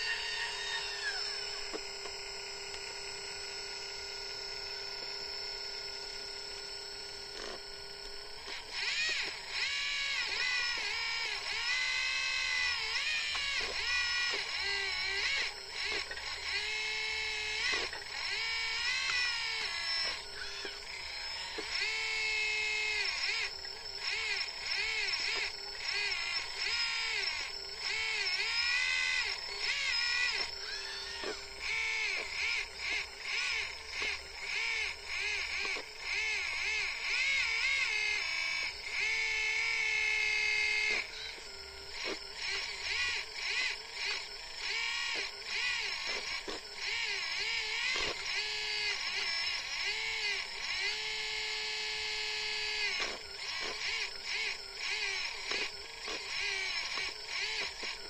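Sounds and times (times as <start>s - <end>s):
electric pump whining: 0.0s - 58.0s.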